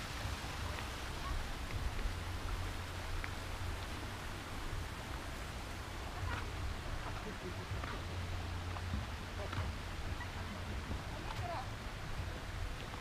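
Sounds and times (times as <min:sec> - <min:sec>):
faint ticks: 0:01.6 - 0:04.0.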